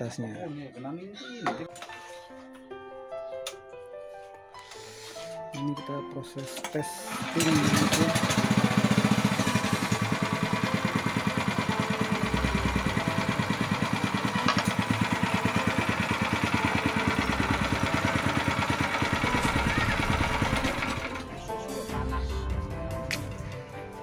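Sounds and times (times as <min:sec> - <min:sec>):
single-cylinder engine running: 0:07.0 - 0:21.6.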